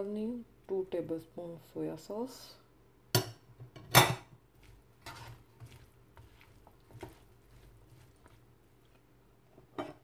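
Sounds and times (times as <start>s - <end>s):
spatula scraping and stirring in pan: 3.8s - 10.0s.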